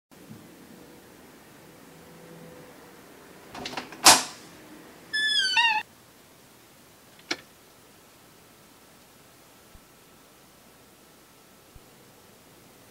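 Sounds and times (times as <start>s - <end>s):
high wavering squeak: 5.2s - 5.8s.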